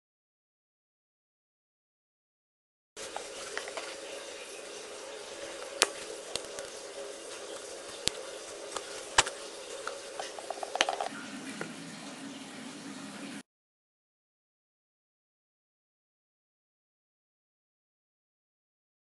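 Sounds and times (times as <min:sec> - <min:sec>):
slime being stirred: 0:03.0 - 0:11.1
utensil clicking against container: 0:05.6 - 0:06.8, 0:07.5 - 0:11.1.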